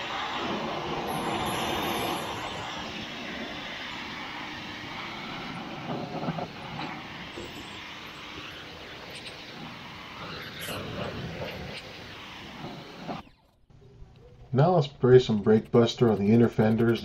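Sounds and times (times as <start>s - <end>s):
pressure washer spraying: 0.0s - 13.2s, 15.2s - 17.0s.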